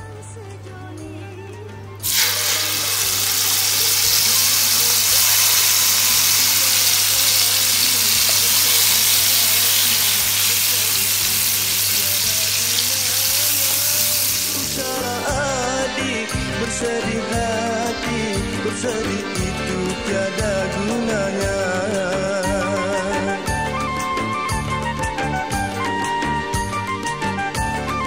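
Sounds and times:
chilli paste sizzling in oil: 0:02.0 - 0:15.3.

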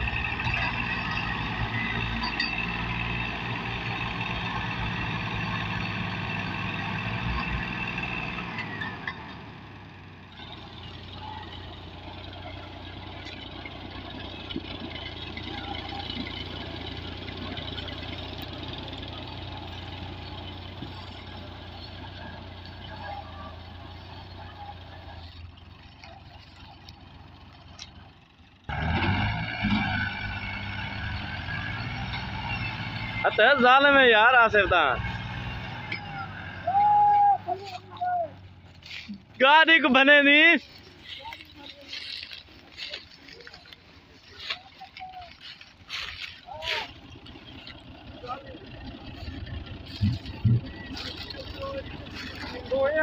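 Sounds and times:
tractor engine working hard: 0:00.0 - 0:53.0.

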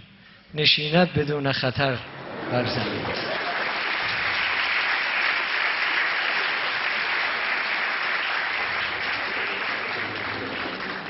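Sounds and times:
audience applauding: 0:02.1 - 0:11.0.

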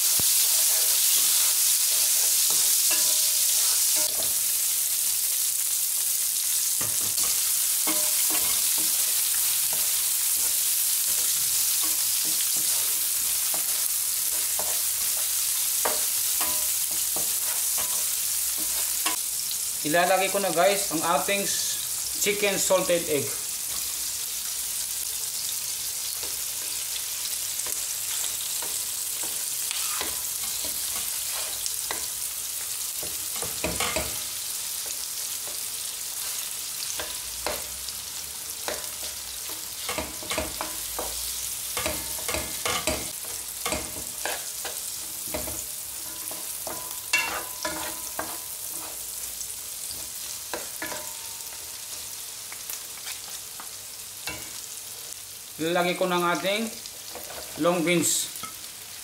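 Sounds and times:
food sizzling in oil: 0:00.0 - 0:59.0
wooden spatulas scraping a wok: 0:28.6 - 0:32.1.

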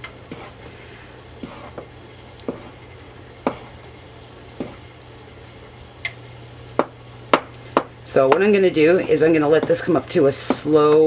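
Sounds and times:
steady low hum: 0:00.0 - 0:11.0
spoon stirring thick sauce: 0:00.2 - 0:00.7, 0:01.4 - 0:02.8.

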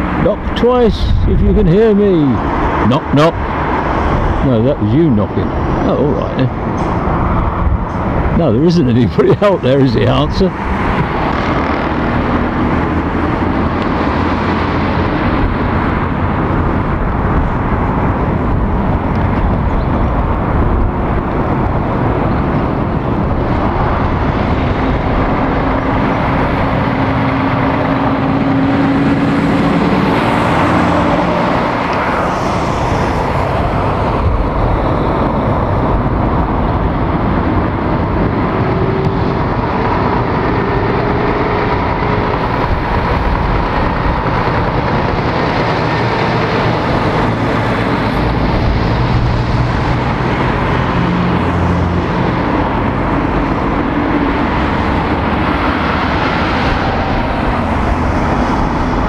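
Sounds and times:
lorry engine: 0:00.0 - 0:59.0
road traffic engines: 0:00.0 - 0:59.0
tyre and road noise: 0:00.0 - 0:59.0.

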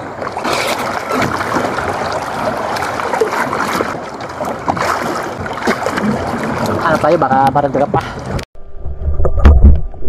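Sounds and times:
seawater sloshing and splashing: 0:00.0 - 0:08.4.

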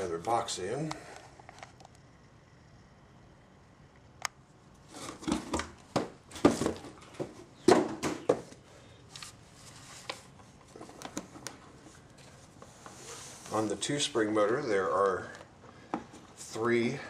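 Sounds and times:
wooden board knocks and clunks: 0:05.2 - 0:08.6.

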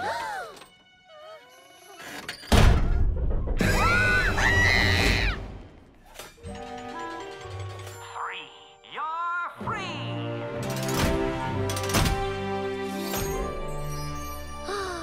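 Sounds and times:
background music: 0:00.0 - 0:15.0
girl screaming: 0:03.7 - 0:05.4.

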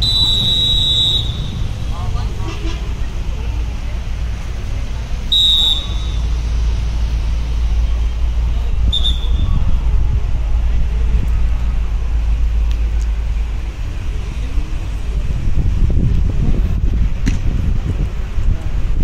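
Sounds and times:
high whistle blast: 0:00.0 - 0:01.8, 0:05.3 - 0:06.6, 0:08.8 - 0:09.7
low rumble: 0:00.0 - 0:19.0.

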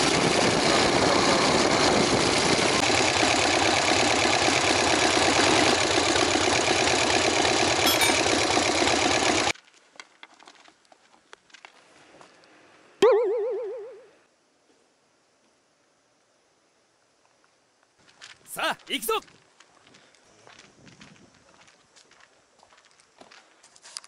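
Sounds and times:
motorcycle engine running: 0:00.0 - 0:09.5.

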